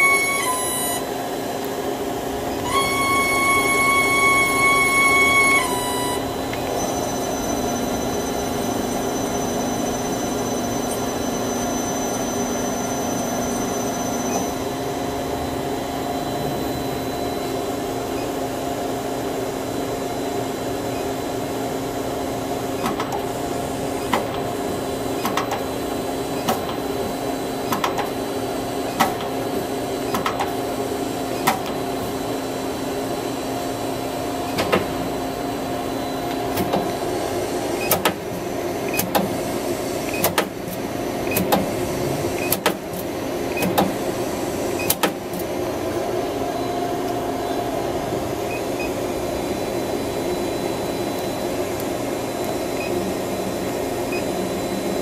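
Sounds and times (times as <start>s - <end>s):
lathe mechanical hum: 0.0s - 55.0s
thin high whine: 2.4s - 18.4s.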